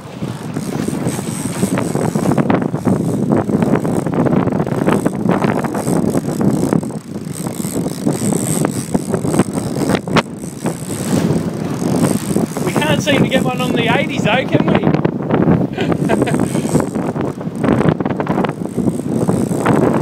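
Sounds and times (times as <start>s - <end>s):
boat motor and water rushing: 0.0s - 20.0s
wind on microphone: 0.0s - 20.0s.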